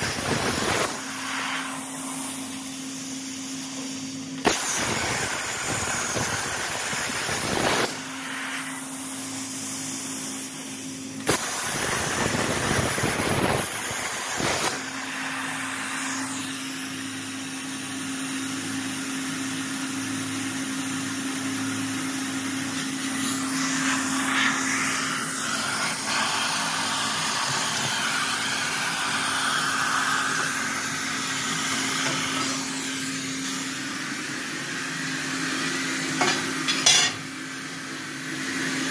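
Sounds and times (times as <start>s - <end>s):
plasma torch hissing: 0.0s - 18.0s, 22.6s - 34.7s.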